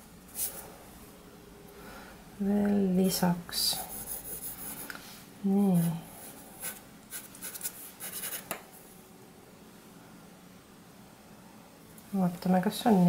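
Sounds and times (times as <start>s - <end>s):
pencil scratching on paper: 3.8s - 4.9s, 5.7s - 8.5s.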